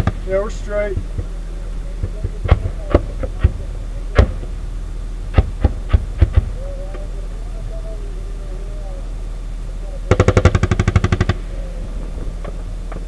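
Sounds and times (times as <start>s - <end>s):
sharp cracks: 0.0s - 4.6s, 5.3s - 7.1s, 10.1s - 13.0s
vehicle engine humming: 0.0s - 13.0s.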